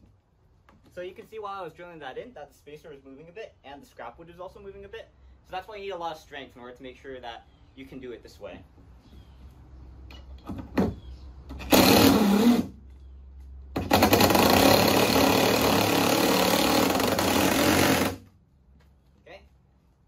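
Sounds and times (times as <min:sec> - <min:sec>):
cordless drill driving screws: 0:11.5 - 0:12.7, 0:13.8 - 0:18.2.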